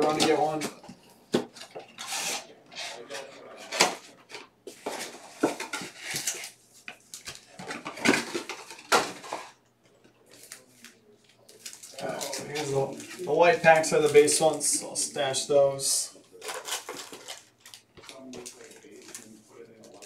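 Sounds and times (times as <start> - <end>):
foil packs rustling and crinkling: 10.3 - 14.9, 16.3 - 20.0.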